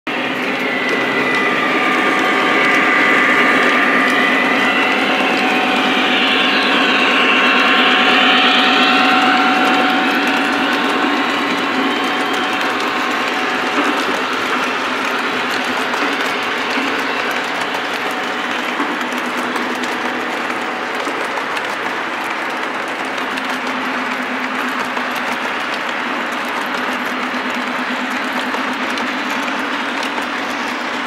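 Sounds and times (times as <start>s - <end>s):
wheels rattling on track: 0.1s - 31.0s.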